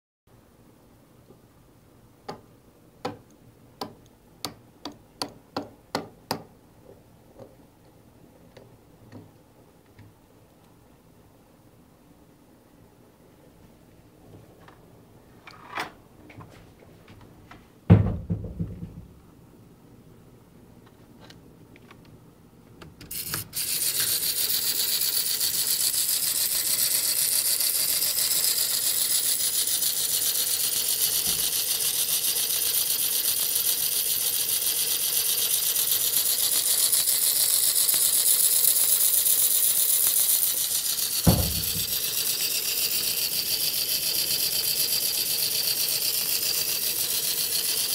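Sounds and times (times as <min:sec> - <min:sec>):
toy handling clicks and knocks: 0:23.0 - 0:47.9
toy motor whirring rattle: 0:23.1 - 0:47.9.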